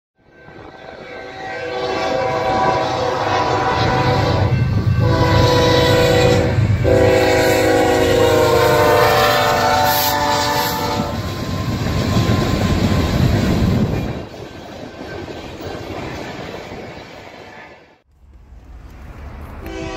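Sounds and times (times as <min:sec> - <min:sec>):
low rumble of train: 0:00.2 - 0:19.9
train air horn blasts: 0:00.3 - 0:12.0, 0:19.6 - 0:19.9.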